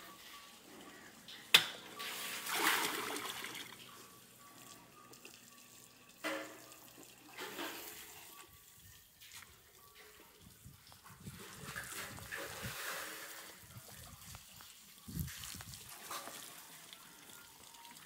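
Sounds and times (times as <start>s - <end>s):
water splashing in a trough: 2.2s - 3.8s.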